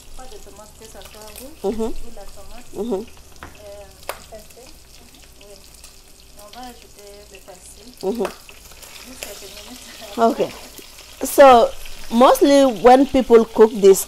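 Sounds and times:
meat sizzling in oil: 0.0 - 14.0.

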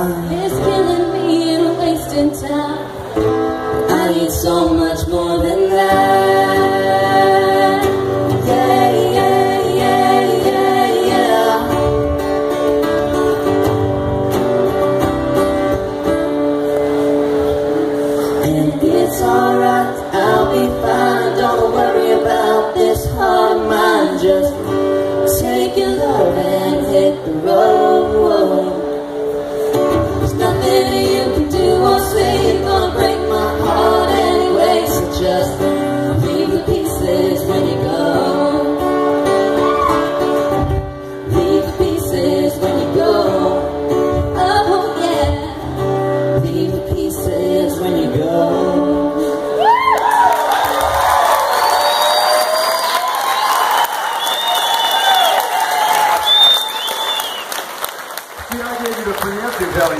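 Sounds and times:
people singing a duet: 0.0 - 12.6, 17.7 - 49.9
guitar accompaniment: 0.0 - 59.9.

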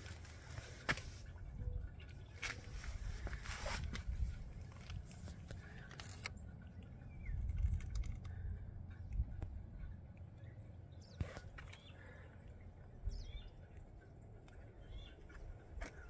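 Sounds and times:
faint low rumble: 0.0 - 16.0.

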